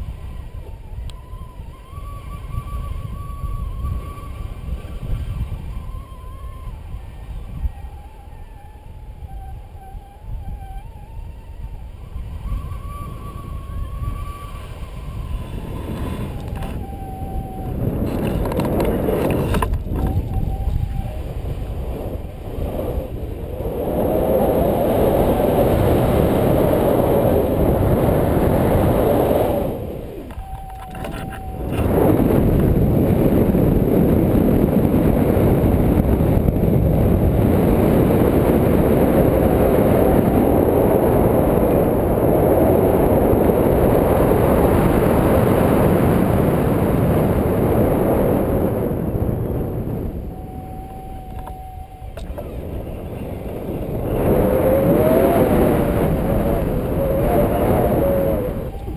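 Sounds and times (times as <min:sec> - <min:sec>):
wind rumbling on microphone: 0:00.0 - 0:58.9.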